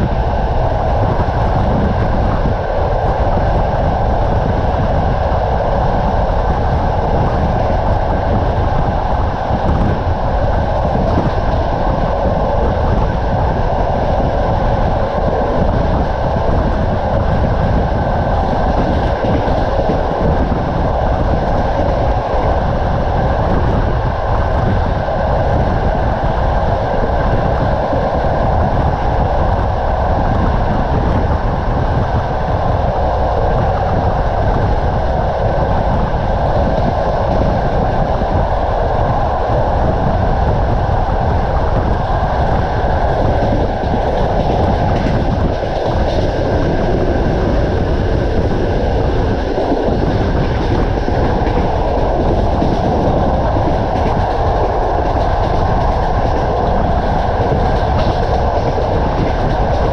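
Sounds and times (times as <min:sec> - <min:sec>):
train wheels rumbling on rails: 0:00.0 - 0:59.9
wheels clickety-clack: 0:43.1 - 0:59.9.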